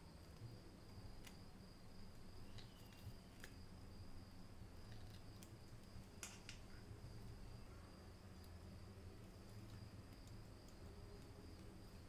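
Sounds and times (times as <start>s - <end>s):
faint high-pitched whine: 0.0s - 12.0s.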